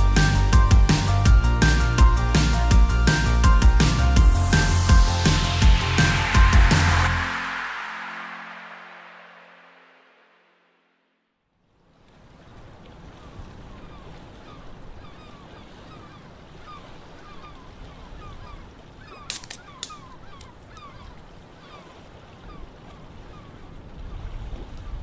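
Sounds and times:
water: 0:11.5 - 0:25.0
flock of birds calling: 0:19.0 - 0:22.0.

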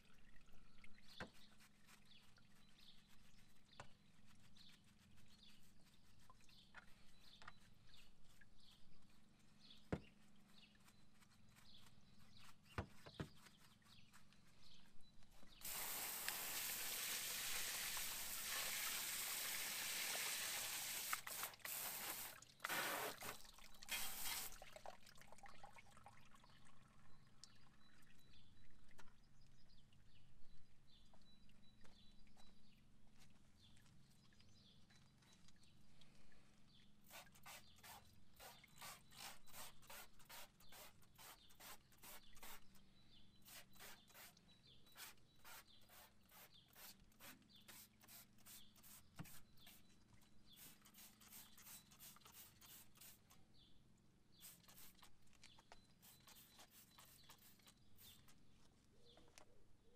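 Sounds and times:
quick cleaning strokes: 0:15.6 - 0:24.6, 0:37.1 - 0:42.7, 0:43.4 - 0:44.4, 0:45.0 - 0:49.9, 0:50.5 - 0:53.4, 0:54.4 - 0:55.2, 0:56.0 - 0:58.4.

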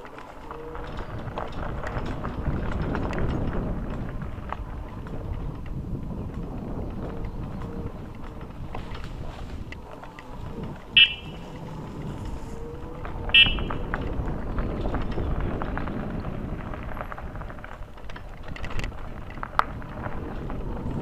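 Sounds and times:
bicycle tyres rumbling: 0:00.0 - 0:21.0
bike rattling: 0:00.0 - 0:21.0
wind buffeting microphone: 0:00.0 - 0:21.0.

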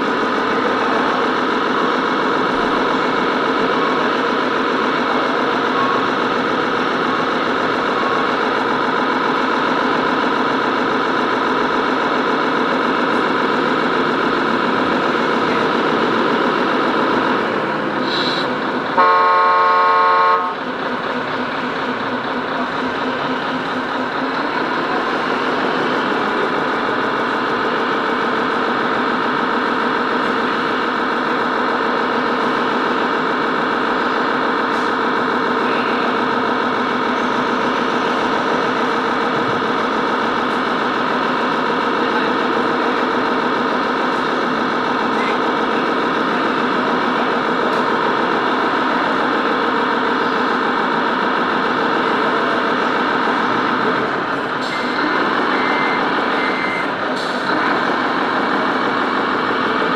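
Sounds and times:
model truck engine sound: 0:00.0 - 0:59.9
reversing beeps: 0:55.5 - 0:56.9.

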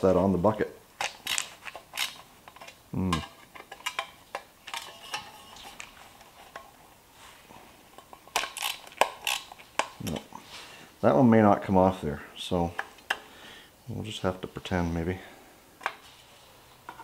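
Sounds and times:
screwdriver clicking and scraping metal: 0:01.0 - 0:06.8, 0:07.9 - 0:10.3.

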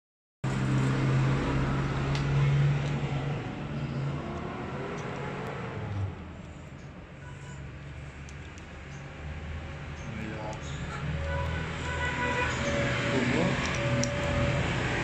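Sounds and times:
engine running low drone: 0:00.4 - 0:15.0
faint clicks of metal parts: 0:04.3 - 0:09.1, 0:13.6 - 0:14.4.

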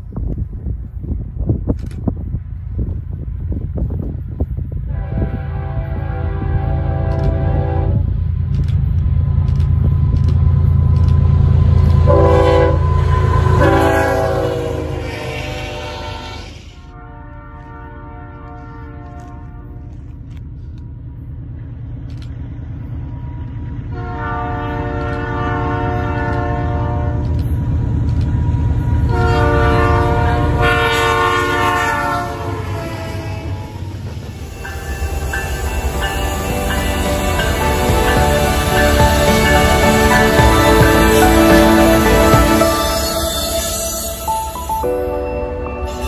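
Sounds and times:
low engine rumble: 0:00.0 - 0:15.2
diesel locomotive engine rumble: 0:00.0 - 0:46.0
train air horn blasts: 0:04.9 - 0:08.1, 0:11.7 - 0:20.1, 0:23.9 - 0:27.4, 0:29.0 - 0:45.0, 0:45.8 - 0:46.0.

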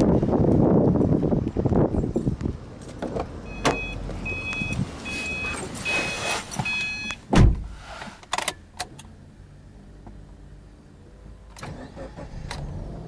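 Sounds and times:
car door warning chime beeping: 0:03.5 - 0:07.2
car door shutting with thump: 0:06.6 - 0:07.8.

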